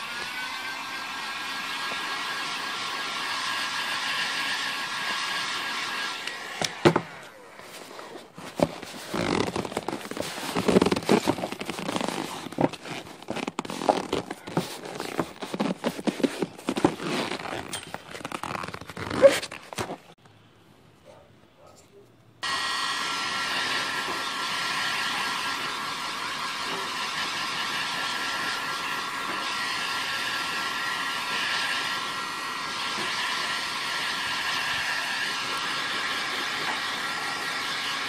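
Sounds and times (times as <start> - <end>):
heat gun blowing: 0.0 - 19.3, 22.4 - 38.0
vinyl crackling and rubbing: 7.4 - 20.2.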